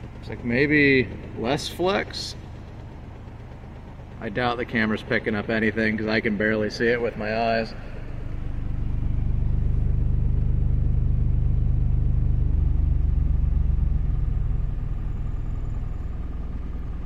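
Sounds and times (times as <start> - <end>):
deep sine test tone from subwoofer: 0.0 - 17.0.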